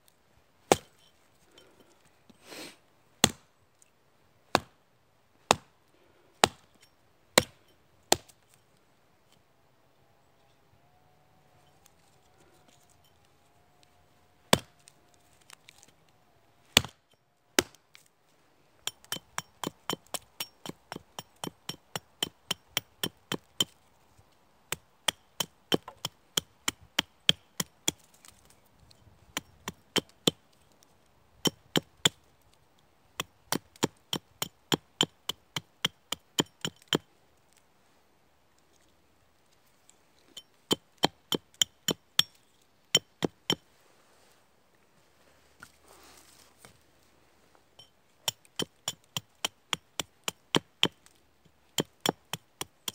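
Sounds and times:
hatchet chopping wood: 0.7 - 0.9, 3.2 - 3.5, 4.5 - 4.8, 5.5 - 5.7, 6.4 - 6.8, 7.4 - 8.4, 14.5 - 14.8, 16.8 - 17.0, 17.6 - 17.8, 18.8 - 23.8, 24.7 - 28.2, 29.3 - 30.4, 31.4 - 32.2, 33.2 - 37.1, 40.4 - 43.6, 48.2 - 52.9.

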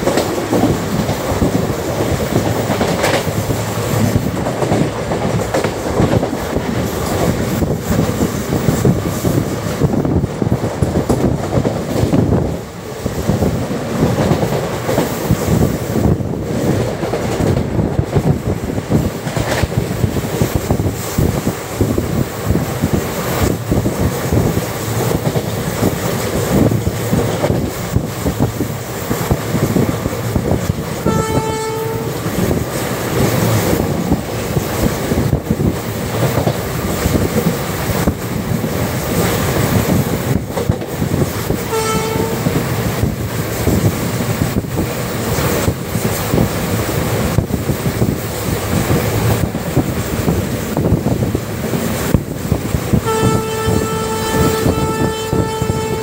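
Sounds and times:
train coach rumbling on rails: 0.0 - 56.0
wind on microphone: 0.0 - 56.0
train horn blasts: 31.0 - 32.3, 41.7 - 42.6, 53.0 - 56.0.

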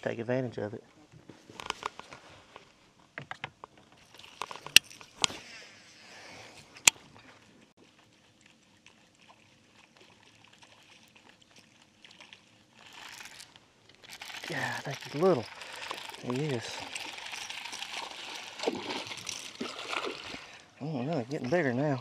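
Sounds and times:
rustling: 3.9 - 20.7.

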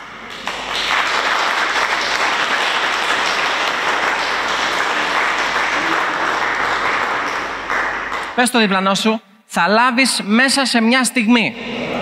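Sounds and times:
crowd clapping: 0.0 - 8.6.

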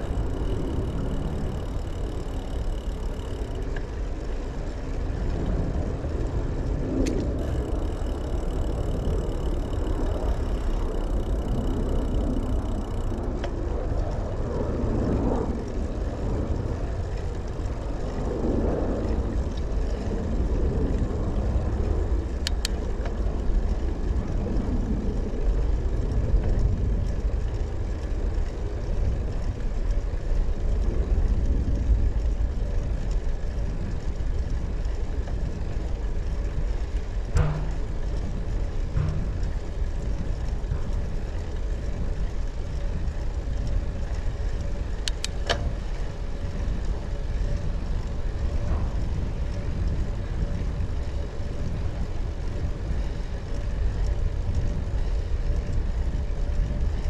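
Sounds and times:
faint clicks: 0.0 - 4.3, 6.6 - 23.3, 28.0 - 51.7
bicycle tyre noise: 0.0 - 57.0
wind rumble on microphone: 0.0 - 57.0.

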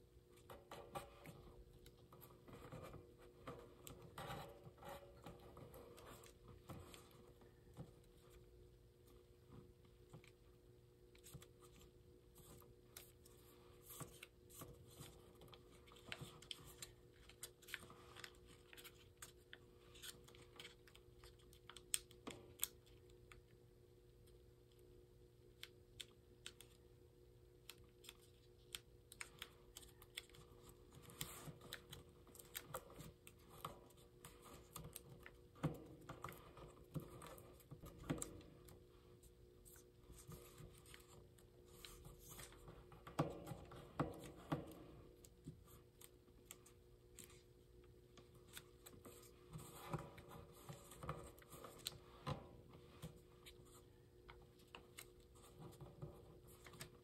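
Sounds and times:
faint steady hum: 0.0 - 57.0
paper being folded: 11.2 - 23.4
paper crinkling: 11.2 - 23.4, 27.7 - 42.7.

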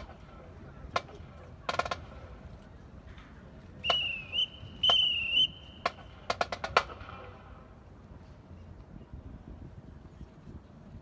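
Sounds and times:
warbling whistle blasts: 3.8 - 6.0.

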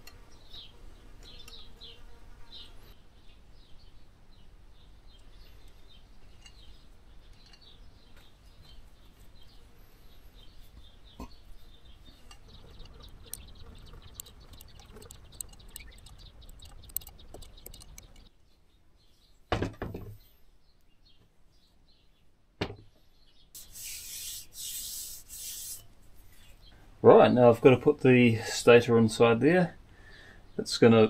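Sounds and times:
light clicks and ticks: 12.2 - 18.3.

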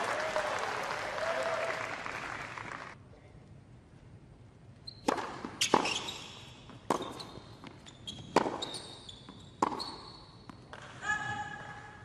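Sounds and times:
shoe squeaks on court: 4.8 - 10.7
racket hitting tennis ball: 5.0 - 9.0, 9.6 - 11.0.

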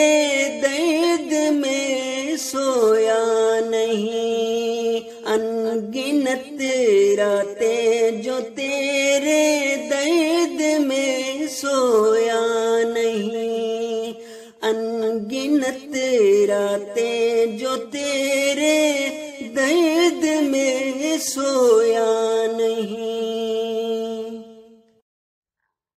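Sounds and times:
man singing unaccompanied: 0.0 - 25.0.

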